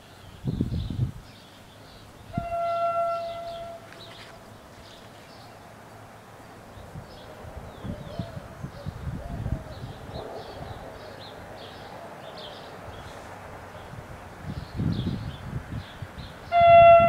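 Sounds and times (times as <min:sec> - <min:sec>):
train horn blast: 0:02.3 - 0:04.4, 0:16.5 - 0:17.0.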